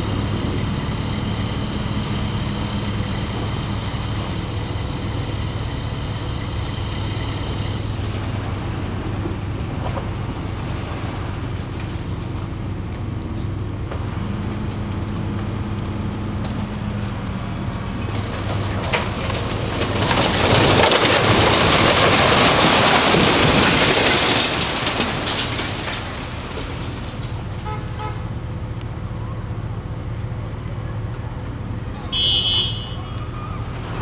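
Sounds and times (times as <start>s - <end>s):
building collapsing crash and rumble: 7.6s - 27.7s.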